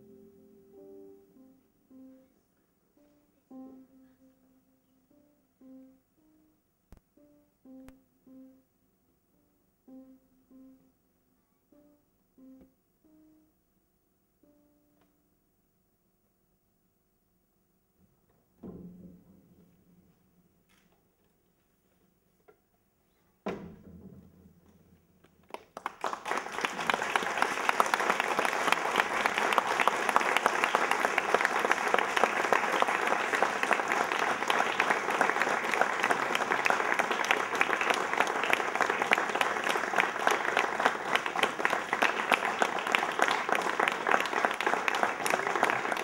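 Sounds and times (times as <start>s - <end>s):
crowd applauding: 25.5s - 46.0s.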